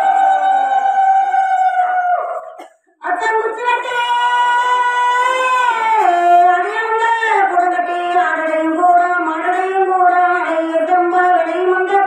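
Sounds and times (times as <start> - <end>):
women ululating: 0.0 - 2.5.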